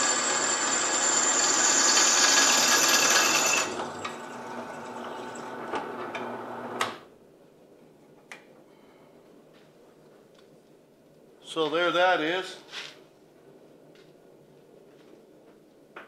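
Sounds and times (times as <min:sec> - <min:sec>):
drill press drilling steel: 0:00.0 - 0:06.6.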